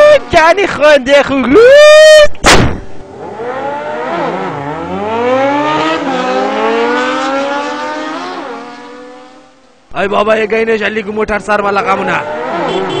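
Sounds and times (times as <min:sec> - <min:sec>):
car engine accelerating: 0:03.0 - 0:09.7, 0:11.9 - 0:13.0.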